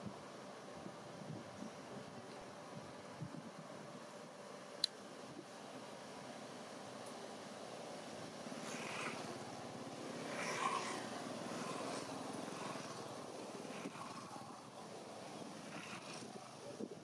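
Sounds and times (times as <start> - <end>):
vehicle engine passing by: 8.3 - 16.9.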